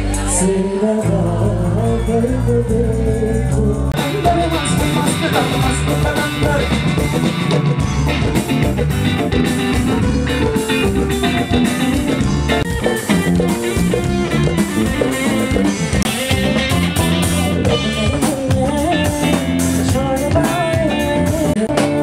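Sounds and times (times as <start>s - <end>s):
person singing: 0.0s - 8.4s, 17.0s - 22.0s
drums: 0.0s - 22.0s
electric guitar: 0.0s - 22.0s.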